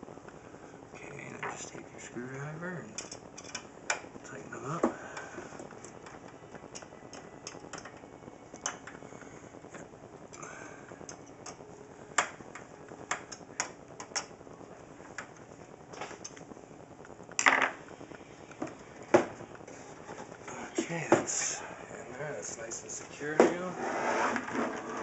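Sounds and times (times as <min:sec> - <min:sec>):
screwdriver clicking and ticking: 0:06.8 - 0:08.0.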